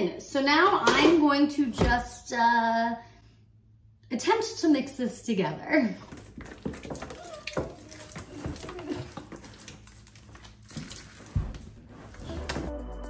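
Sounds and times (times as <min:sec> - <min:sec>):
hands squelching sticky slime: 0:06.1 - 0:11.7.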